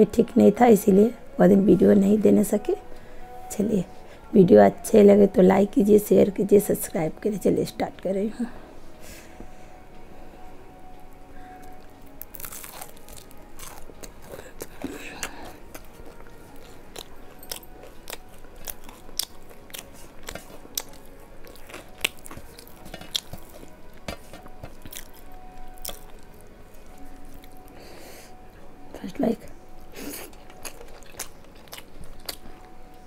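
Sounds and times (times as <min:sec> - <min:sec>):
crunchy chewing of fried food: 0:11.7 - 0:28.0, 0:29.8 - 0:33.0.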